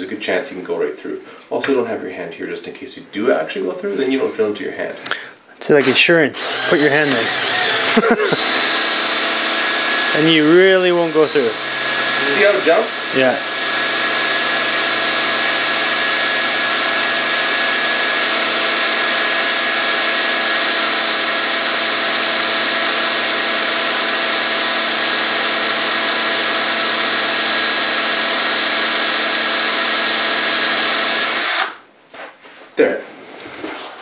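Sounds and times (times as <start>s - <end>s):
cordless drill boring into wood: 5.8s - 31.8s.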